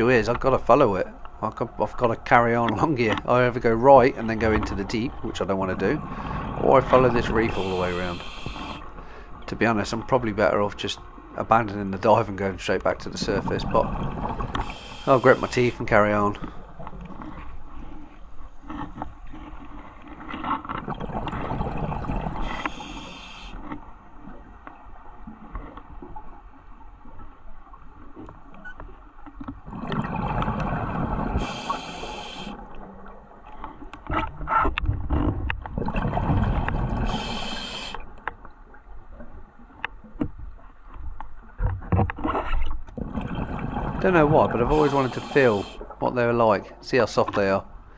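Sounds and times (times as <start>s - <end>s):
diver breathing through regulator: 6.0s - 6.6s, 7.5s - 9.4s, 14.6s - 15.7s, 22.4s - 23.6s, 31.3s - 32.6s, 36.9s - 38.0s, 44.6s - 45.9s
exhaled bubbles rushing: 20.9s - 22.6s, 29.7s - 31.5s, 35.7s - 37.4s, 43.0s - 46.0s.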